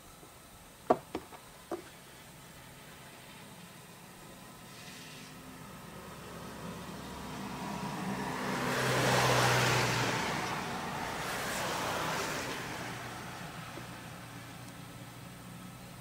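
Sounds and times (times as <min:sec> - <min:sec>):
road vehicle passing by: 0:04.5 - 0:16.0.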